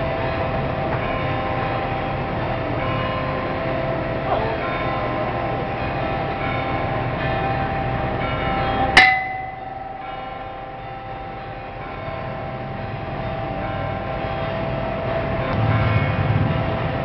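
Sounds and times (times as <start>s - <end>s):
boxing ring bell clang: 8.7s - 10.8s.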